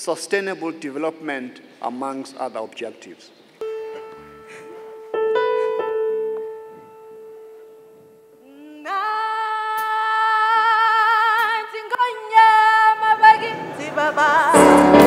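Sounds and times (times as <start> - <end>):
sustained keyboard notes: 3.6 - 8.4
person singing with vibrato: 3.6 - 15.0.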